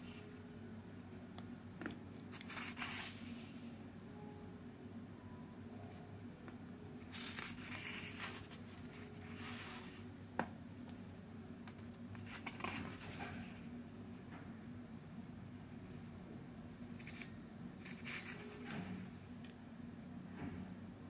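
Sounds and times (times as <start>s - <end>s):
faint steady hum: 0.0s - 21.0s
paper pages turning: 2.3s - 3.7s, 7.0s - 10.0s, 11.6s - 13.6s, 16.9s - 19.0s.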